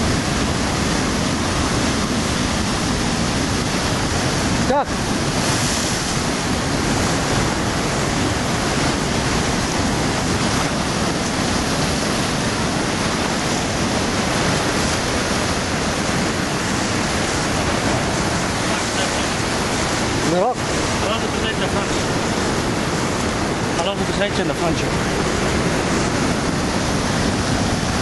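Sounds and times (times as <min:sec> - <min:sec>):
surf breaking over rocks: 0:00.0 - 0:28.0.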